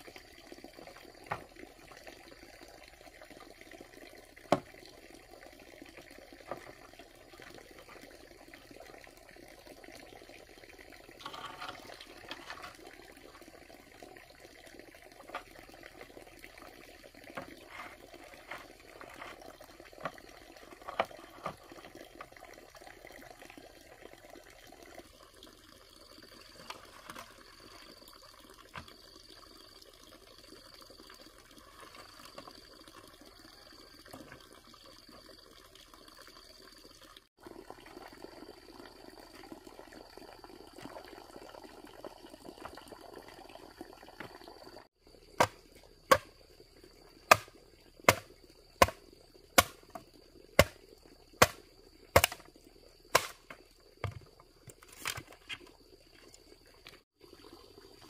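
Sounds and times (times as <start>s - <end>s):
water trickling and splashing: 0.0s - 58.0s
sharp chopping strikes: 53.2s - 53.4s.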